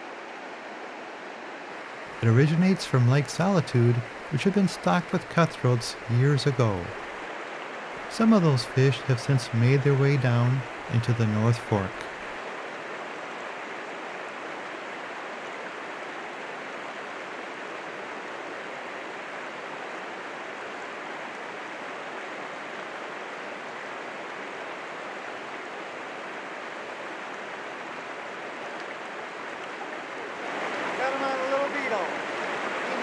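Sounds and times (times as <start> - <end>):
stream running over rocks: 0.0 - 33.0.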